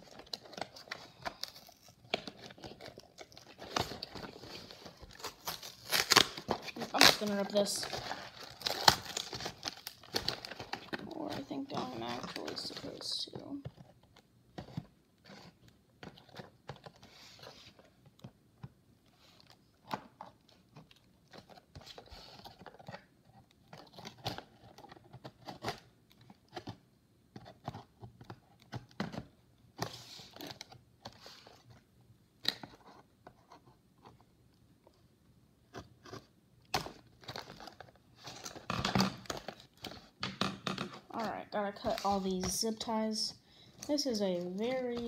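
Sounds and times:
cardboard tearing and rustling: 0.0 - 13.1, 36.0 - 40.1.

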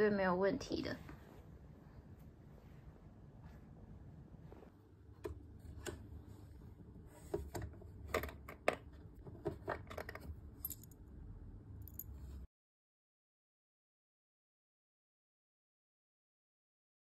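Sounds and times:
metal rings clinking: 10.6 - 11.0, 11.8 - 12.4.

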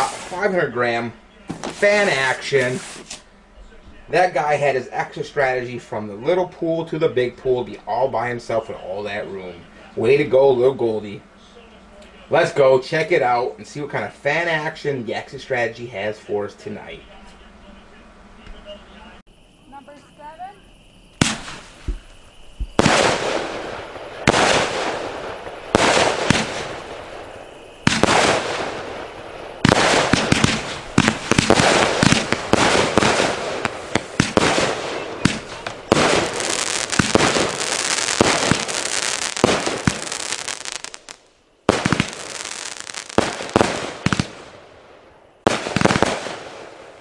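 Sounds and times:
firework shots launching and bursting: 0.0 - 0.6, 1.5 - 3.2, 21.2 - 47.0.

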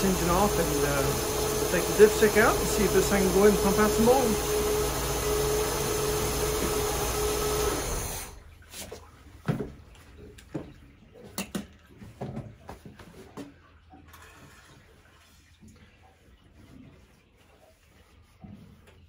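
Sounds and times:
boat engine running: 0.0 - 8.3.

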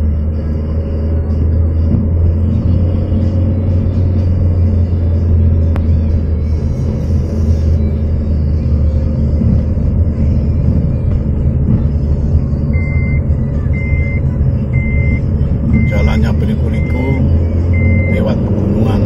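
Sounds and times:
car engine and road rumble: 0.0 - 19.0
high electronic beep: 12.6 - 19.0.

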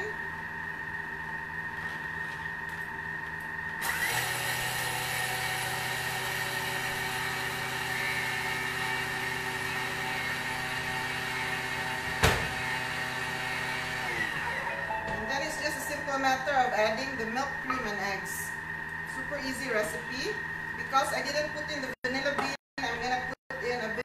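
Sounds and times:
blender blade whirring: 3.8 - 14.7.

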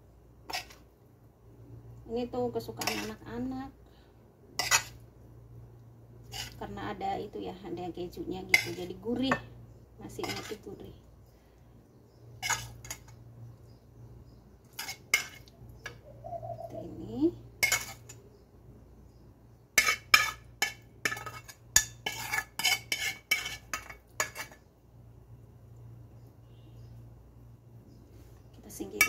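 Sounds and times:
metal utensil scraping a pan: 0.5 - 0.8, 2.8 - 3.2, 4.6 - 5.0, 6.2 - 6.6, 8.5 - 9.4, 10.2 - 10.7, 12.4 - 13.2, 14.7 - 15.5, 17.6 - 18.2, 19.8 - 24.6.

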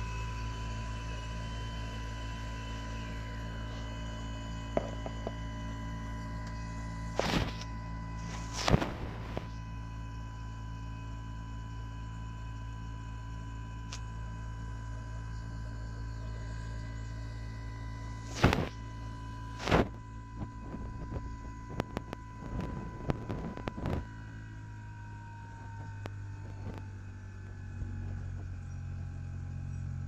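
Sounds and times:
heat pump high whine: 0.0 - 30.0
heat pump low hum: 0.0 - 30.0.

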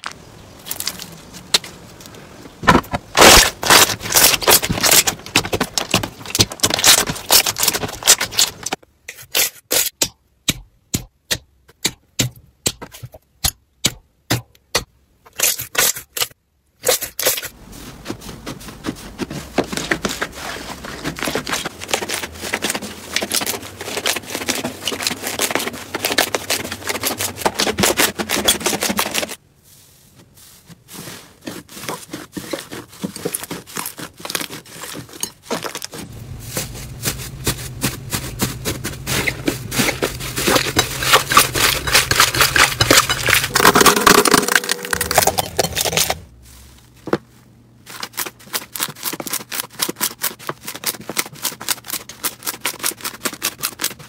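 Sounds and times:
low hum: 36.0 - 47.7.

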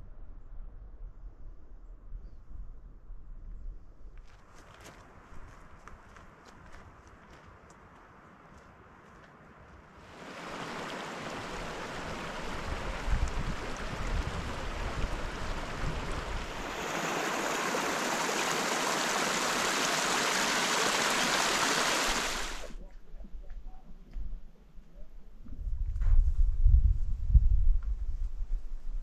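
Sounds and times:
creek splashing over rocks: 10.0 - 22.7.

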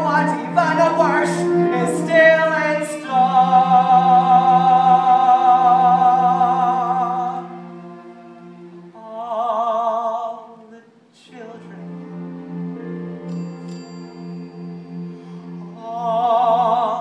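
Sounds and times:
man singing with vibrato: 0.0 - 7.7, 8.9 - 12.1, 15.7 - 17.0
musical theatre accompaniment: 0.0 - 17.0.

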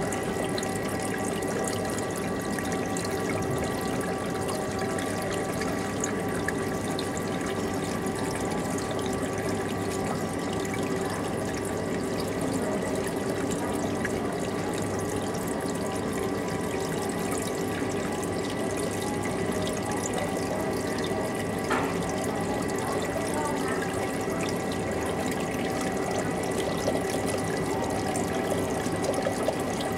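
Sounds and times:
aquarium pumps humming: 0.0 - 29.9
water rushing and trickling: 0.0 - 29.9.

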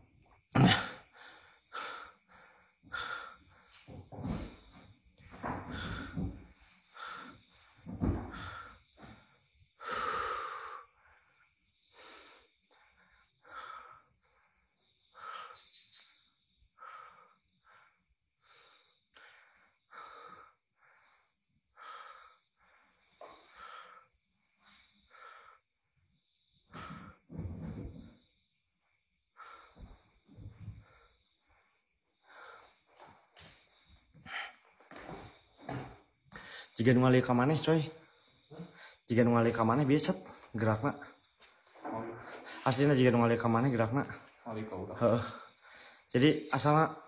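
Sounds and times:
person breathing heavily: 0.6 - 4.8, 5.4 - 27.4, 29.3 - 36.8.

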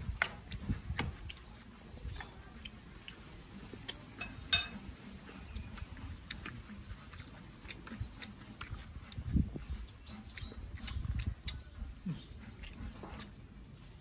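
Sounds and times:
chewing: 0.0 - 14.0.

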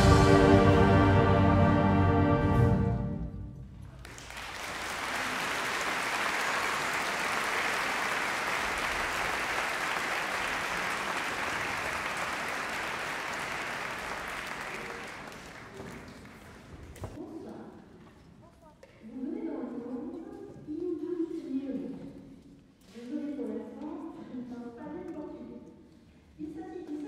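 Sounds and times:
audience applauding: 3.8 - 17.0.

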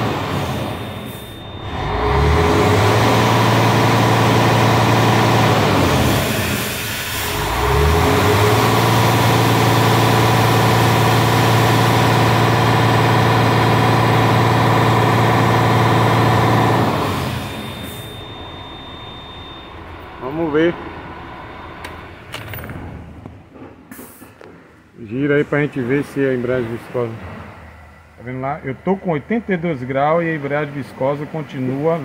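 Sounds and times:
truck diesel engine revving: 0.0 - 22.3.

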